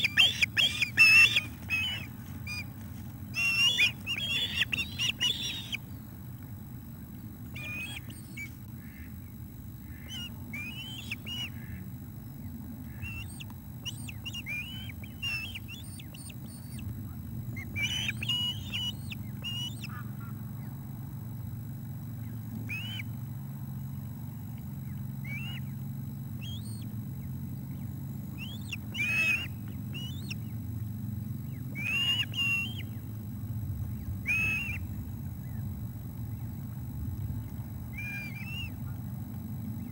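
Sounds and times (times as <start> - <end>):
ospreys chirping: 0.0 - 20.0, 26.4 - 35.6, 37.9 - 38.9.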